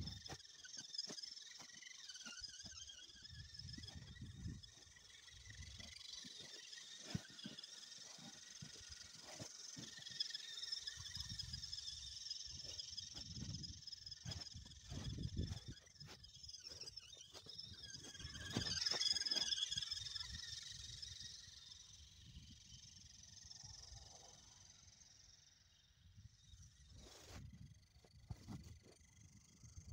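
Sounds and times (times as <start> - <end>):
electric motor whining: 0.0 - 22.6
crunches and low rumbles: 13.2 - 16.2.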